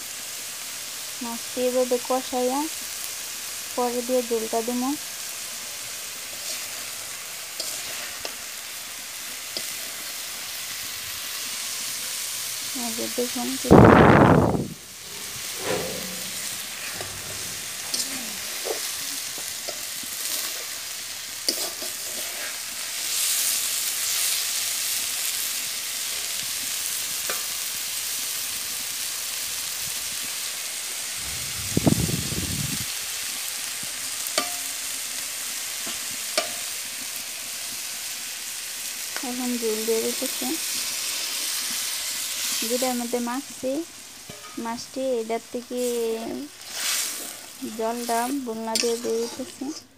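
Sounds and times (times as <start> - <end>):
food sizzling in oil: 0.0 - 49.9
pan bump: 14.4 - 18.8
metal spatula scraping pan: 14.5 - 19.0, 46.7 - 49.9.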